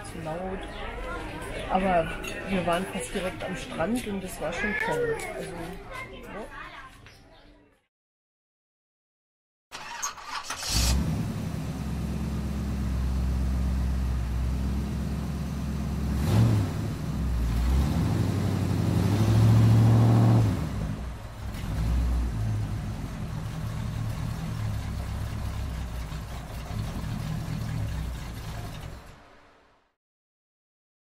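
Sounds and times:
vehicle engine revving: 9.8s - 29.4s.

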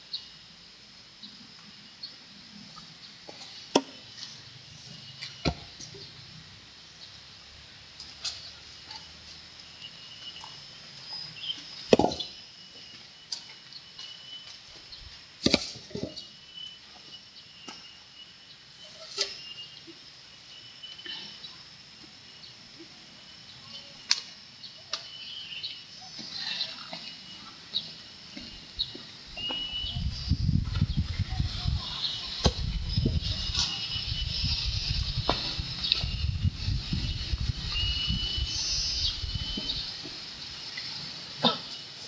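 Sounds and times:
wood knocking and thudding: 11.9s - 12.3s.

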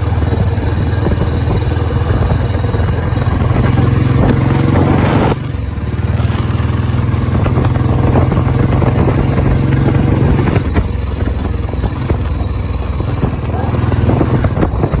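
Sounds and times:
motorcycle engine thumping: 0.0s - 15.0s.

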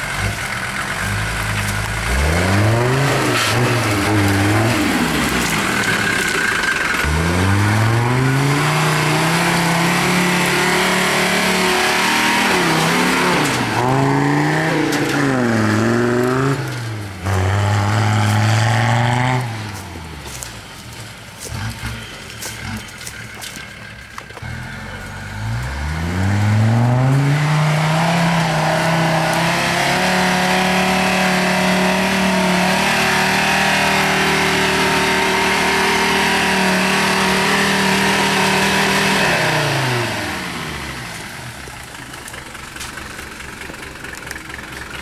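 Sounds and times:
off-road vehicle engine revving: 0.0s - 45.0s.

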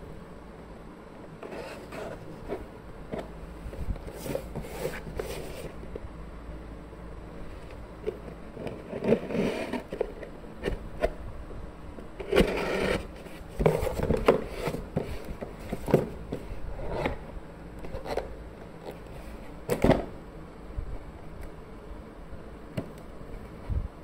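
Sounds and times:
cardboard flaps scraping: 1.4s - 5.8s, 12.2s - 17.2s.

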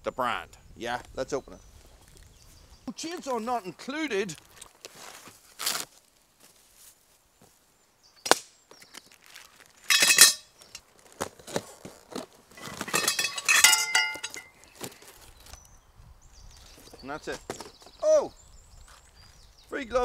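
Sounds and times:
metal rails clinking and clanking: 9.9s - 10.5s, 12.6s - 14.6s.

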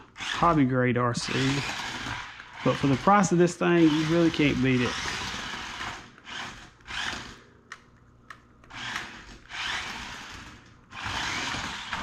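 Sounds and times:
small electric motors whirring: 1.2s - 7.4s, 8.7s - 12.0s.

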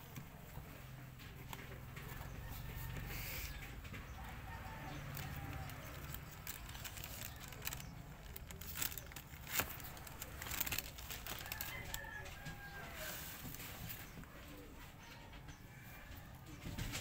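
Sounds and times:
packaging rustling and clicking: 4.1s - 14.2s.

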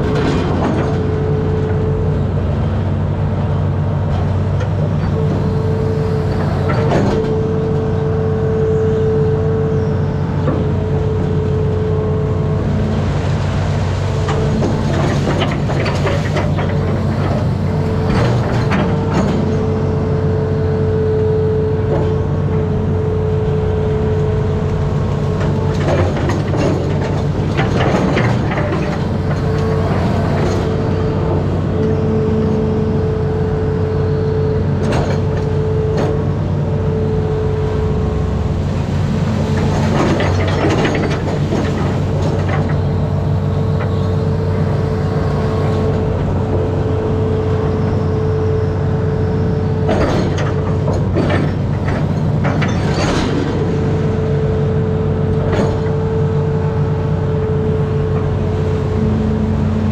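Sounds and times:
machine clanks and knocks: 0.0s - 2.0s, 6.2s - 7.9s, 14.2s - 20.0s, 25.2s - 32.0s, 34.8s - 36.4s, 38.8s - 44.6s, 49.8s - 56.3s
diesel engine running: 0.0s - 59.9s.

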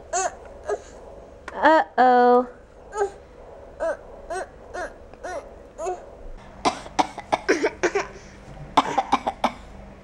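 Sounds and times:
baby vocal sounds: 0.1s - 1.0s, 2.9s - 3.2s, 3.8s - 6.1s
baby coughing: 6.6s - 8.2s, 8.8s - 9.7s.

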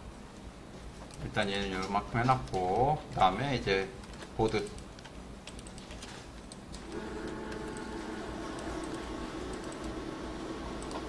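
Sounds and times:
steady low hum: 0.0s - 11.0s
computer keyboard clicks: 4.0s - 6.7s.

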